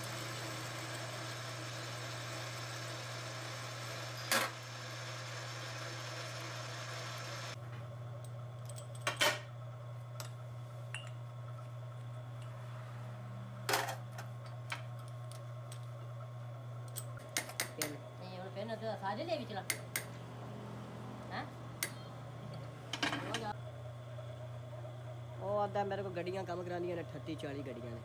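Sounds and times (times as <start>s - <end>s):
metal lathe running: 0.0s - 7.6s.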